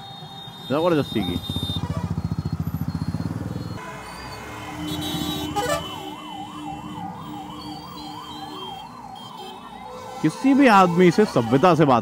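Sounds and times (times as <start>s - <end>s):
emergency siren wailing: 0.0s - 12.0s
motorcycle engine running: 0.8s - 3.8s.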